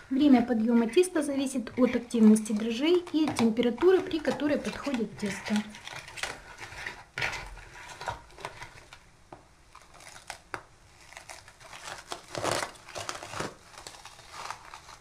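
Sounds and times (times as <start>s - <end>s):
plastic cling film crinkling: 0.0s - 9.1s, 9.7s - 15.0s.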